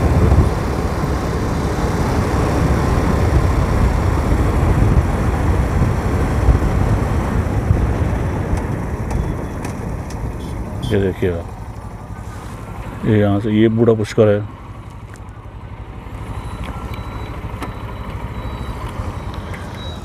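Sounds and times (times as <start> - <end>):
wind buffeting microphone: 0.0 - 13.0
motorcycle engine and road noise: 0.0 - 20.0.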